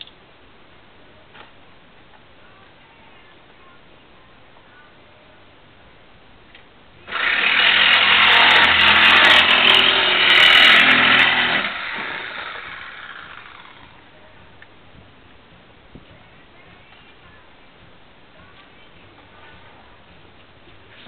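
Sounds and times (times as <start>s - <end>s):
loud motor running: 7.1s - 14.0s.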